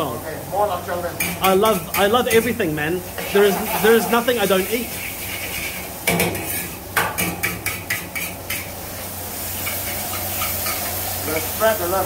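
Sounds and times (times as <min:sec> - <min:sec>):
frying hiss: 0:00.0 - 0:12.0
spatula knocking and scraping wok: 0:03.2 - 0:08.8, 0:09.6 - 0:11.5.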